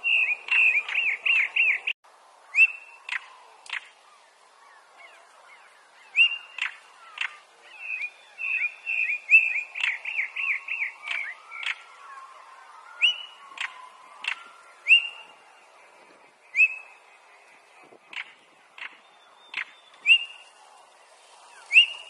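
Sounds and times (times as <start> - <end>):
bird whistled calls: 0.0 - 3.9, 4.6 - 15.4, 16.4 - 17.1, 18.1 - 20.5, 21.6 - 22.0
bird warbling: 2.6 - 20.6, 21.5 - 22.0
bird hard clicking calls: 3.1 - 4.0, 6.2 - 7.4, 9.8 - 11.9, 13.0 - 15.0, 18.1 - 20.2.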